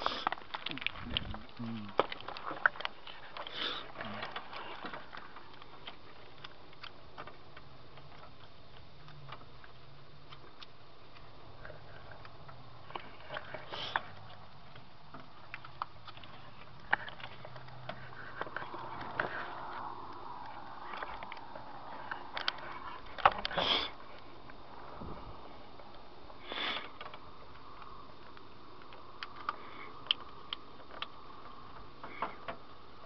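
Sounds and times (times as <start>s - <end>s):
wires clicking and rustling: 0.0s - 24.9s, 25.5s - 33.0s.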